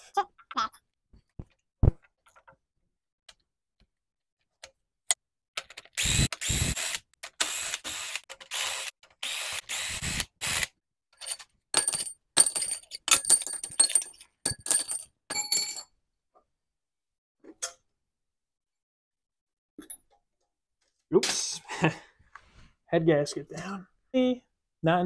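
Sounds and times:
metal clinks and rattles: 11.2 - 15.8.

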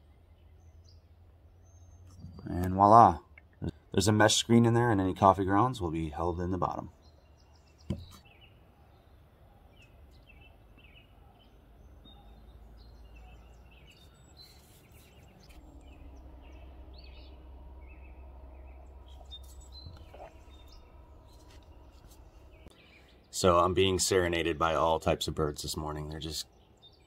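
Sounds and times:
songbirds chirping: 0.0 - 27.0
low steady rumble: 10.6 - 24.6.

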